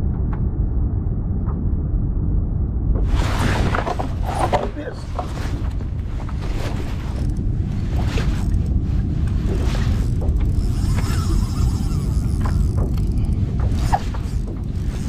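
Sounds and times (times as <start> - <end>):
steady low rumble: 0.0 - 15.0
fishing reel drag clicking: 10.5 - 13.1.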